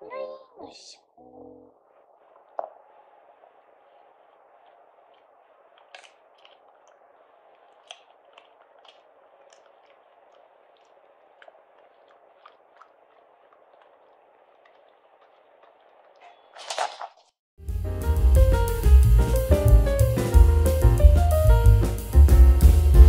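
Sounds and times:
faint clicks and crunches: 4.6s - 17.4s.

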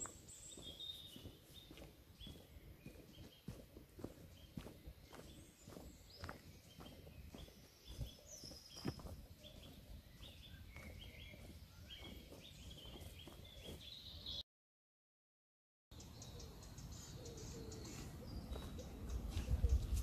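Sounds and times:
footsteps on dirt path: 0.0s - 14.4s, 17.9s - 20.0s
small birds chirping: 0.0s - 14.4s, 15.9s - 20.0s.

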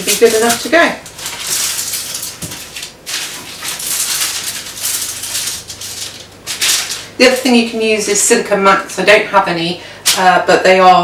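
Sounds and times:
baking paper crinkling: 0.0s - 7.8s.

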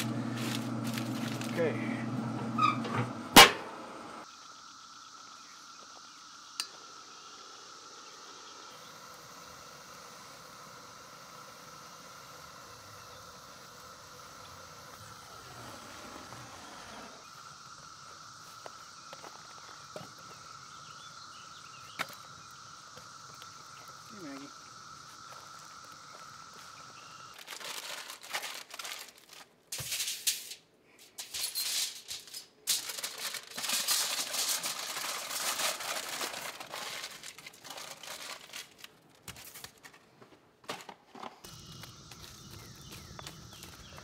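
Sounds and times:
metal lid banging shut: 2.6s - 3.7s
faint steady hiss: 4.2s - 40.2s.

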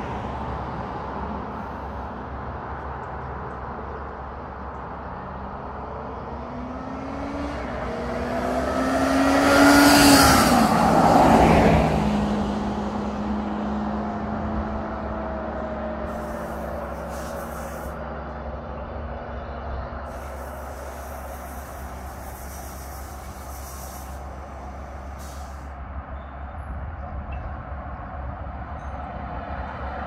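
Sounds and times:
motorcycle riding past: 6.7s - 12.3s.

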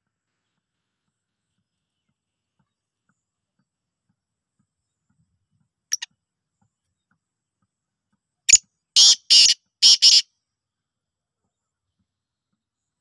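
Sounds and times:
bird harsh grating calls: 9.0s - 10.2s.

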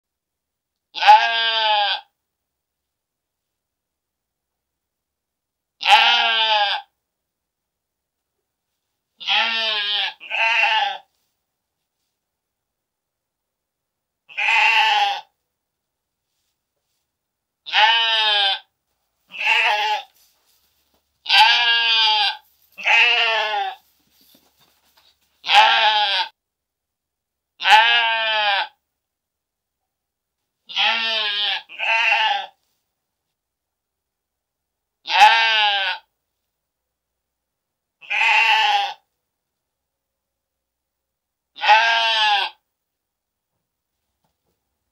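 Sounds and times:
sheep bleating: 1.0s - 2.1s, 5.8s - 6.9s, 9.2s - 11.1s, 14.3s - 15.3s, 17.7s - 18.7s, 19.3s - 20.2s, 21.2s - 23.8s, 25.4s - 26.4s, 27.6s - 28.8s, 30.7s - 32.6s, 35.1s - 36.1s, 38.0s - 39.0s, 41.6s - 42.6s.

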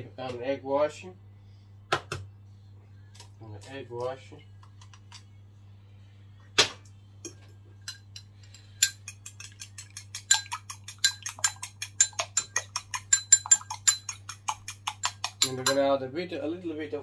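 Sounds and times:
egg beaten in ceramic bowl: 7.3s - 16.0s
utensil knocking ceramic bowl: 8.9s - 15.9s.

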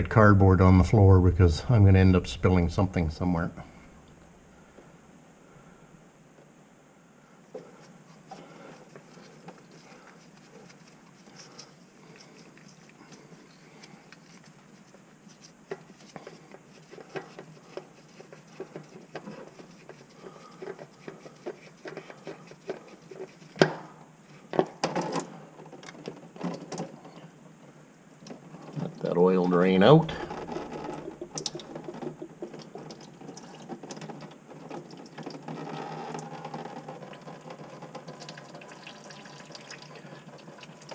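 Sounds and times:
clicks taps and rubbing: 7.5s - 27.0s, 30.3s - 40.9s.

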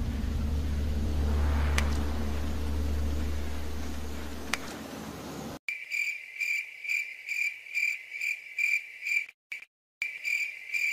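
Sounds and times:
low rumble: 0.0s - 5.6s
crickets chirping: 5.7s - 9.3s, 10.0s - 10.9s.

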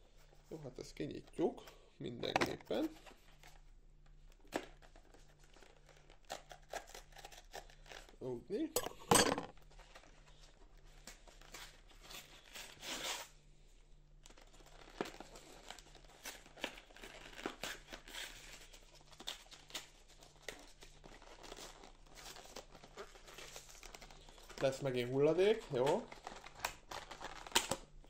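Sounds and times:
packaging rustling and tearing: 4.3s - 8.2s, 9.5s - 13.3s, 14.2s - 28.0s.

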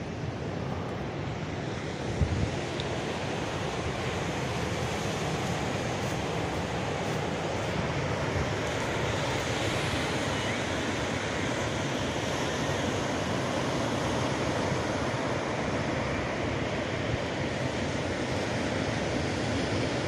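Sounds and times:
wind rumble on microphone: 0.0s - 13.4s
ocean surf breaking: 0.1s - 18.4s.

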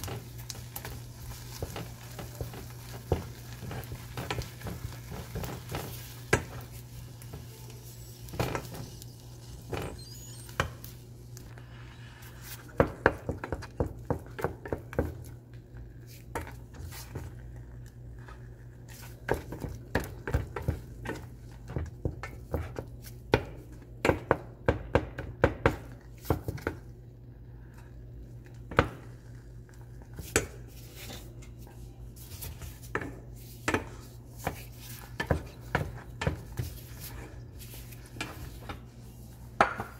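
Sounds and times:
wooden spoon scraping saucepan: 30.0s - 39.9s.

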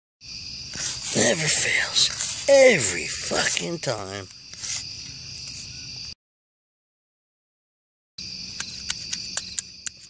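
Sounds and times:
crickets trilling: 0.2s - 6.2s, 8.2s - 10.0s.

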